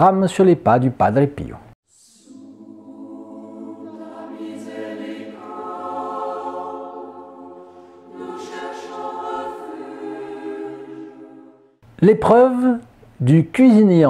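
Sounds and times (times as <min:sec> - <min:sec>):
choir singing long notes: 0:01.9 - 0:11.8.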